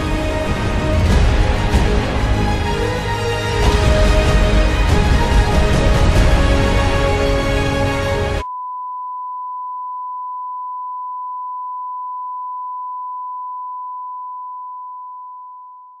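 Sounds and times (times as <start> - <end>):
music: 0.0 - 8.4
steady test tone beep: 8.4 - 16.0.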